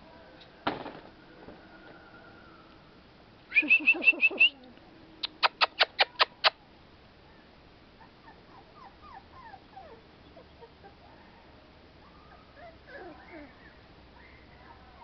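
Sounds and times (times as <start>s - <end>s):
puppies whimpering and squeaking: 8.0s - 11.0s, 12.0s - 15.0s.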